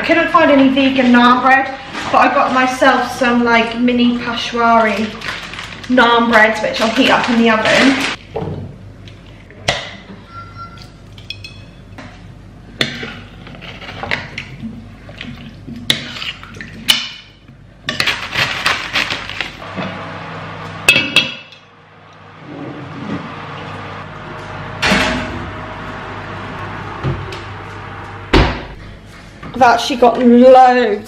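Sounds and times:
heavier knock: 28.3 - 28.8.

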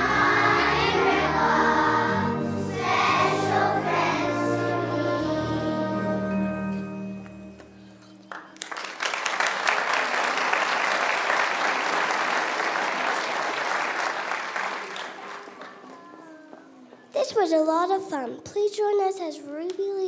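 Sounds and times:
children's choir singing: 0.0 - 6.8
audience applauding: 8.3 - 16.2.

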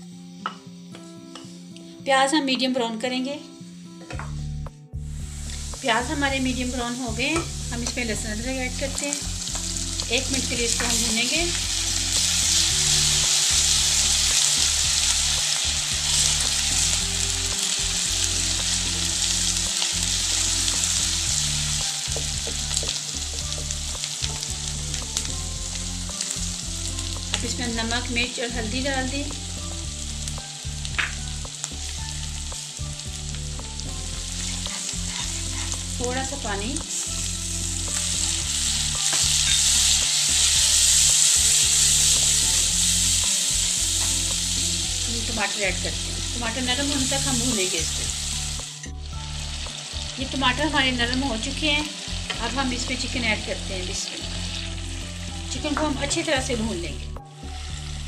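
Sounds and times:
onions sizzling in hot oil: 0.0 - 1.9, 4.3 - 58.0
wooden spatula scraping a pan: 34.4 - 35.9.

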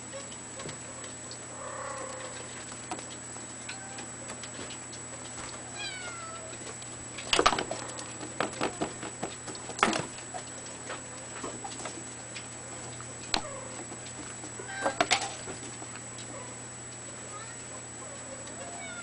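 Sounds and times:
kitten meowing: 5.7 - 6.4, 17.3 - 17.6, 18.6 - 19.0.

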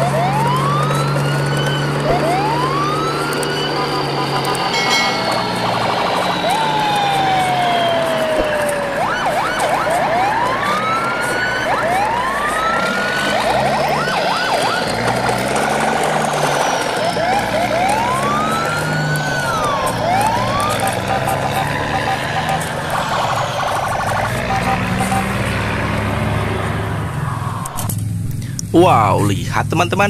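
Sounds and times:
sliding siren-like whistle tones: 0.0 - 28.0
noisy bed with low hum: 28.3 - 30.0.

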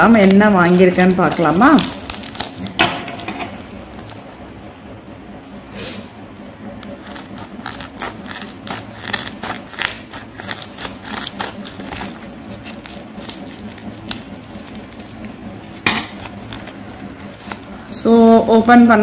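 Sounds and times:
scissors cutting plastic bag: 0.0 - 3.3, 6.9 - 17.7
plastic bag crinkling: 0.0 - 4.0, 6.8 - 17.8.

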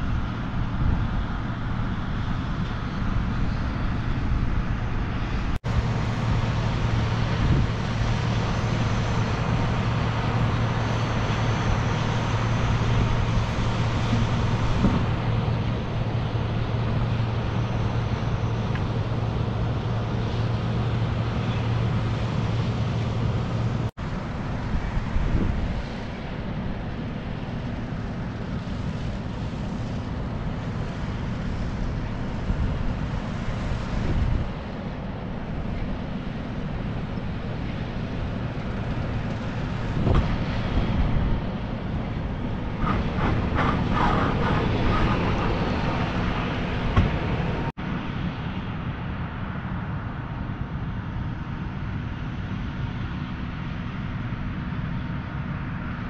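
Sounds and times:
low mechanical hum: 0.0 - 56.0
wind rushing: 42.2 - 47.7.

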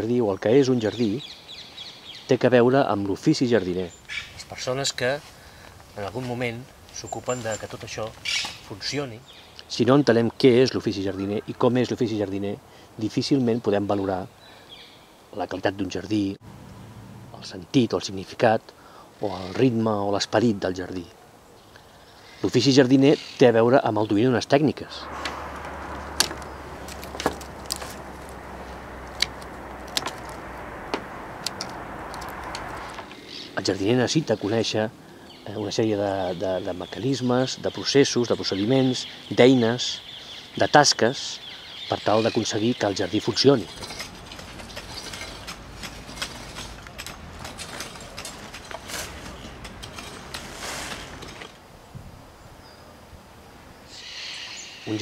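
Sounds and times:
low outdoor background: 0.0 - 55.0
small knocks: 25.2 - 33.0
pruning shears snipping twigs: 25.2 - 33.2, 43.4 - 51.6
shovel scraping dry soil: 43.5 - 51.6.

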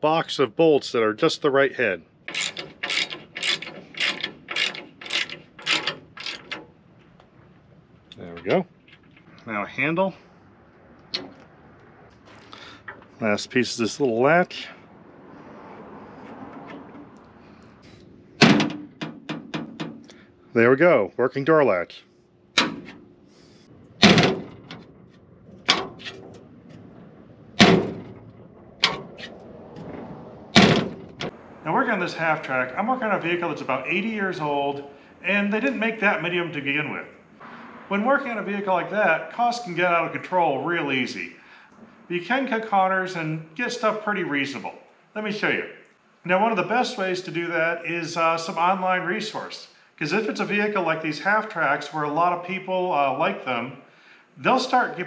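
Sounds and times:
ratchet wrench clicking: 2.3 - 6.5
metal door clacking shut: 2.3 - 6.8, 11.1 - 11.4, 18.4 - 20.2, 22.6 - 23.1, 23.9 - 31.4.

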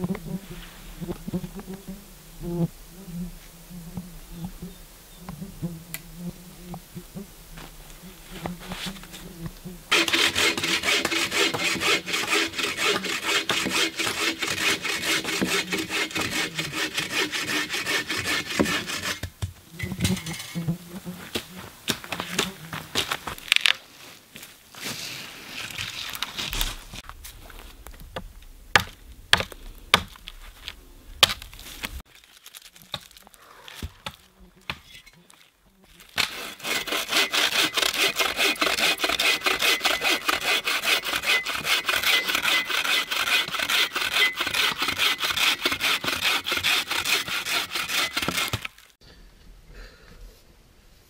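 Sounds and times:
bow saw cutting log: 9.9 - 19.3, 36.0 - 48.8
dry wood snapping and crunching: 21.9 - 23.8, 25.6 - 39.6, 48.1 - 49.0.

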